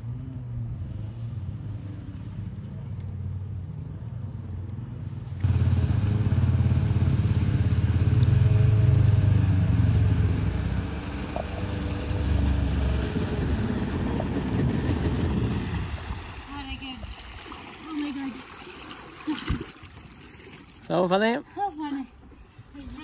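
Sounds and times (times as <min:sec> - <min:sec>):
jet ski engine running: 0:05.4 - 0:17.1
water rushing off hull: 0:05.4 - 0:21.4.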